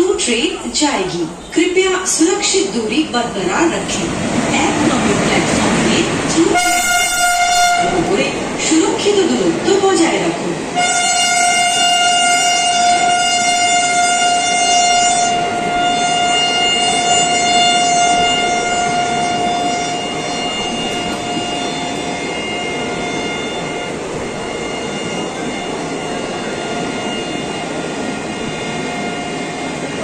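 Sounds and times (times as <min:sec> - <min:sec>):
train wheels on rail: 0:00.0 - 0:30.0
steady high tone: 0:11.5 - 0:30.0.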